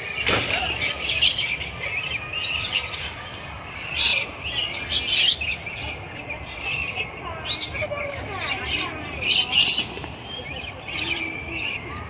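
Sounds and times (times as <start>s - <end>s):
lorikeets screeching calls: 0.0s - 12.0s.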